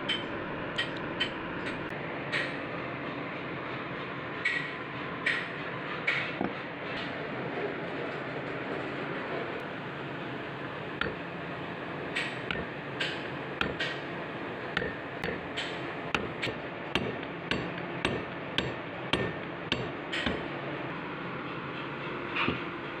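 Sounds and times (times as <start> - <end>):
hammer tapping on rubber pad: 13.6 - 13.9, 14.8 - 15.4.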